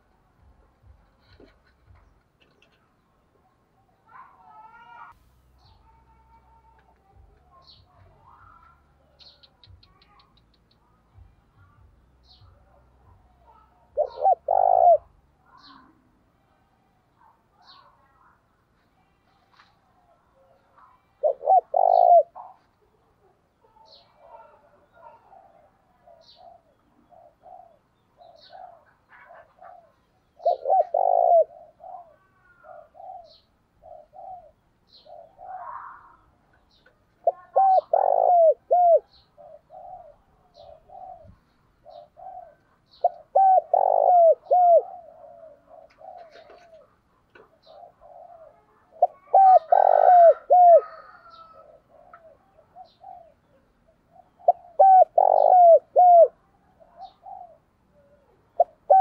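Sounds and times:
dove cooing: 11.6 - 16.2, 20.1 - 59.0.

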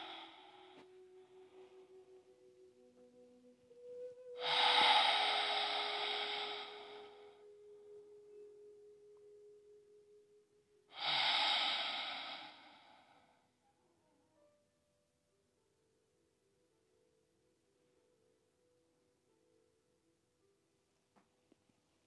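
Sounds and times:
person breathing out: 0.0 - 0.9, 4.4 - 7.4, 10.9 - 13.4.

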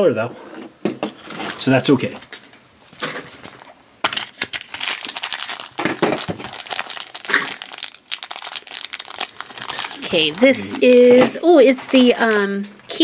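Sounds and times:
wrapper crinkling and tearing: 3.2 - 12.7.

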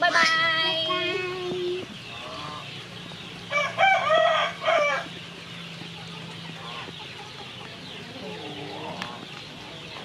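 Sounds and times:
rooster crowing: 3.5 - 5.1.

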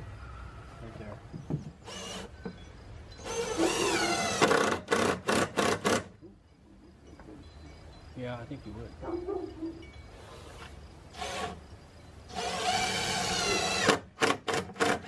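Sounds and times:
cordless drill driving a screw: 3.2 - 6.1, 12.3 - 15.0.

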